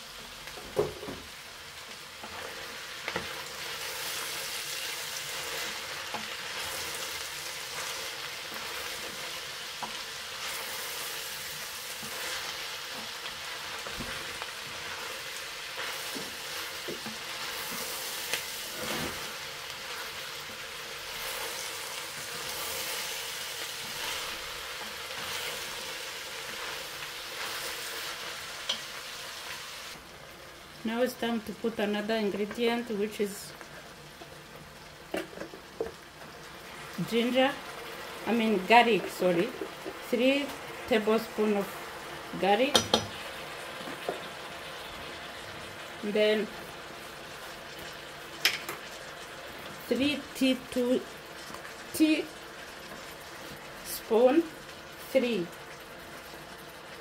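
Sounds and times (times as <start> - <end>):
vegetables sizzling in oil: 0.0 - 57.0
wooden spoon knocking on pot: 42.7 - 43.2.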